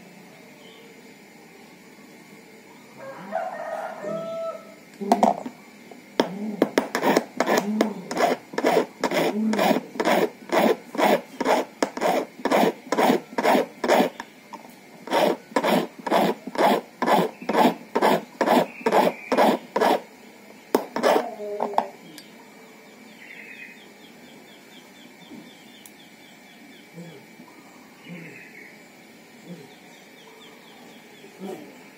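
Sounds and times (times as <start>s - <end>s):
hand file rasping on metal: 6.9s - 14.2s, 15.0s - 20.0s, 21.0s - 21.3s.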